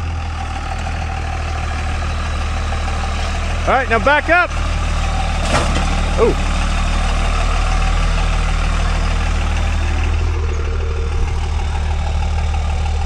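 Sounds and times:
truck engine at low revs: 0.0 - 13.0.

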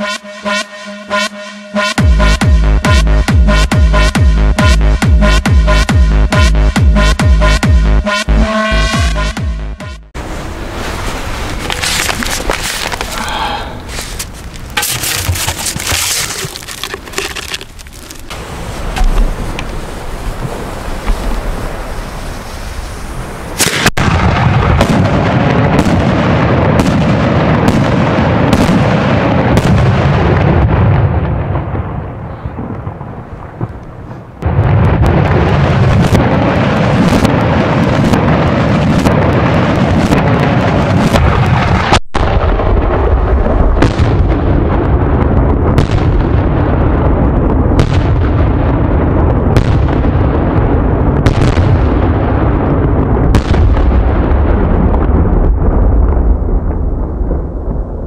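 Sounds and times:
firework bangs with rumbling echo: 23.6 - 58.0.

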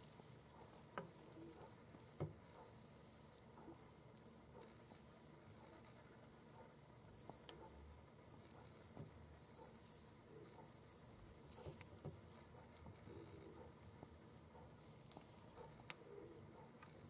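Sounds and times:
faint high-pitched chirps: 0.6 - 14.0.

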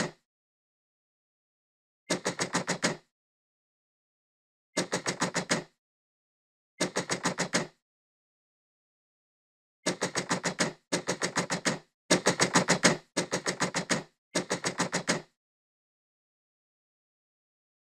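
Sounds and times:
knuckles knocking on a door: 4.8 - 5.8, 9.9 - 15.3.

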